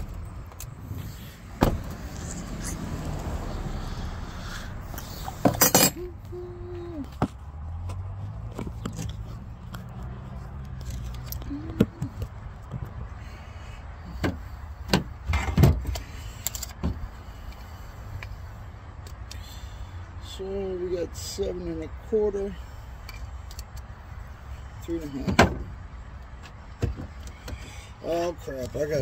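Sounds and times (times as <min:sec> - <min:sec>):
metal tools clinking on plywood: 0:05.4 - 0:06.1.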